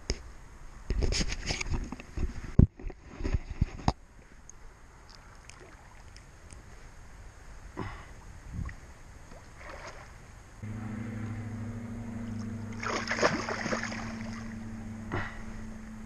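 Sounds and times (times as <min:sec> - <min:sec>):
low mechanical hum: 0:00.0 - 0:16.0
fish thrashing and splashing: 0:12.7 - 0:14.6.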